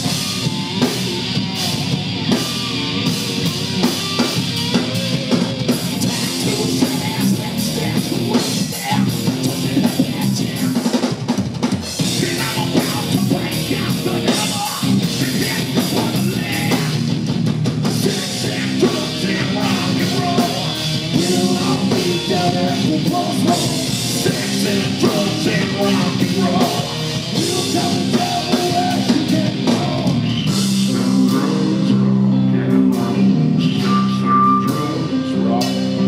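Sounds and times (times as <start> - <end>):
drum kit with cymbals: 0.0 - 32.0
bass: 0.0 - 36.0
distorted guitars: 0.0 - 36.0
man singing: 5.9 - 10.9, 12.0 - 17.1, 17.9 - 36.0.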